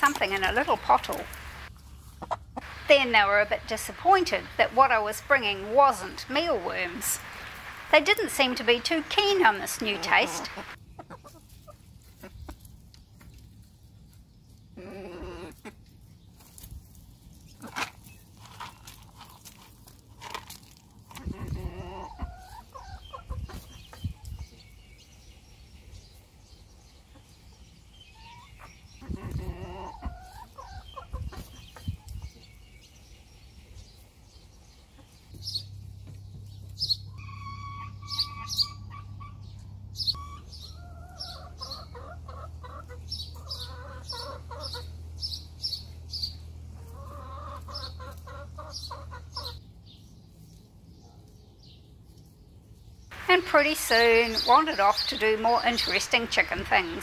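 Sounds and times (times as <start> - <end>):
hens clucking: 0.0 - 12.7, 21.1 - 24.4, 28.2 - 32.2, 40.2 - 45.2, 46.3 - 49.6, 53.1 - 57.0
steady low hum: 2.6 - 10.8.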